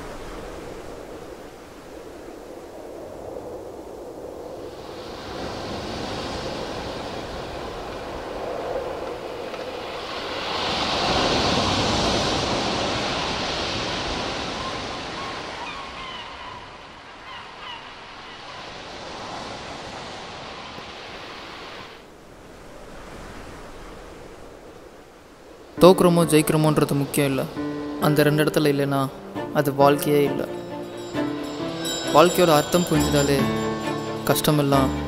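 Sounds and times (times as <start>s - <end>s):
rushing wind-like noise: 0.0s - 25.9s.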